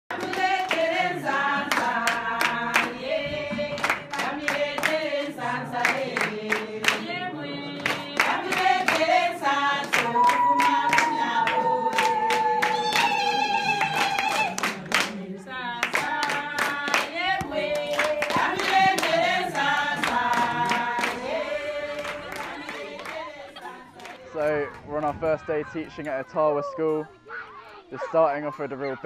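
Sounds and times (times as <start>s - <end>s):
hand claps: 0.1s - 5.1s, 5.8s - 7.2s, 7.8s - 15.2s, 15.8s - 21.4s
group singing in chorus: 0.1s - 24.4s.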